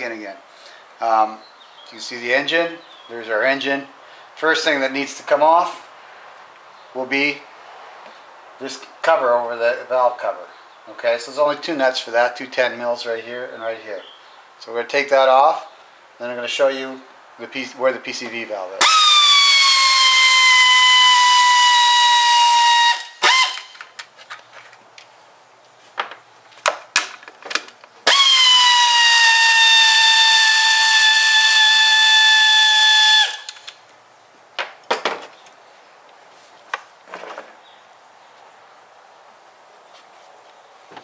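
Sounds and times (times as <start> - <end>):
air ratchet whining: 18.8 - 23.9, 28.1 - 33.7.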